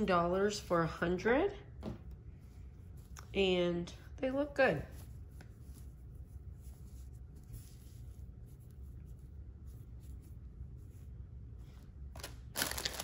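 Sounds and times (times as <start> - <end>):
low room hum: 0.0 - 13.0
fabric bag rustling: 12.2 - 13.0.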